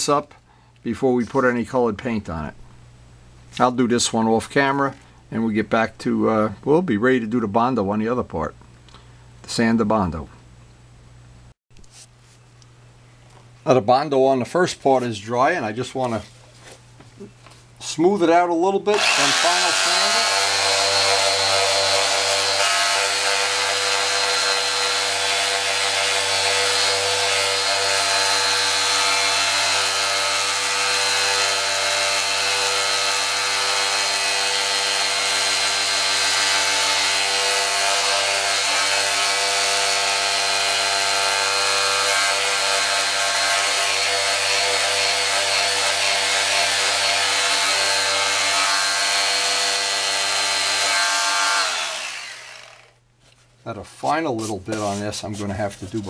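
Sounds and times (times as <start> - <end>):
electric sander humming: 18.9 - 52.9.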